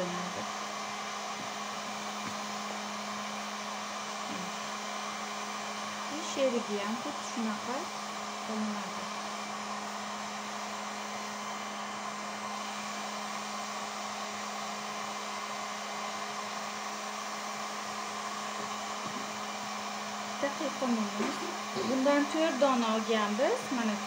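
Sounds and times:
heat gun fan humming: 0.0s - 24.0s.

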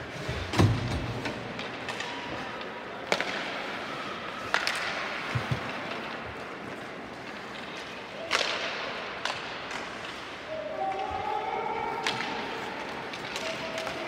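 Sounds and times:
skates scraping ice: 0.0s - 10.5s
hockey sticks and puck cracking: 0.6s - 11.1s, 11.9s - 14.0s.

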